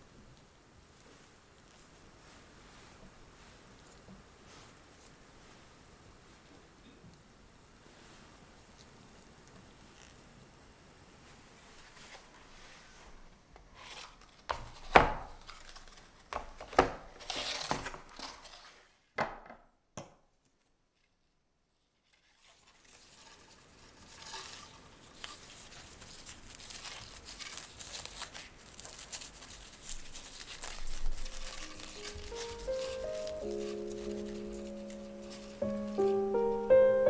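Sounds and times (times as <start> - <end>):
ribbon rustling: 22.2 - 37.0.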